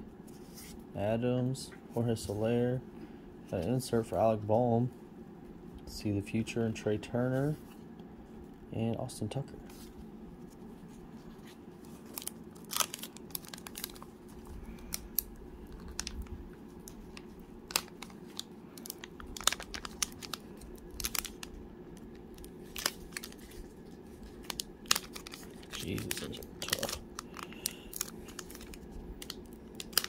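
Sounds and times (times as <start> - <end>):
faint steady hum: 0.0 - 30.0
foil wrapper crinkling: 11.2 - 30.0.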